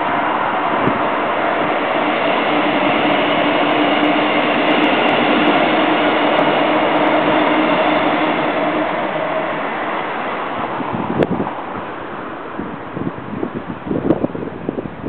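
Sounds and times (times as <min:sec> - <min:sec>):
strong wind rushing: 0:00.0 - 0:15.0.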